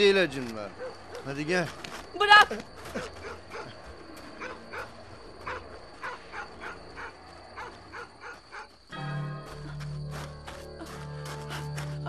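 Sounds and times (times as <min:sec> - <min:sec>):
dog barking: 0:00.8 - 0:01.3, 0:03.0 - 0:03.8, 0:04.4 - 0:08.7.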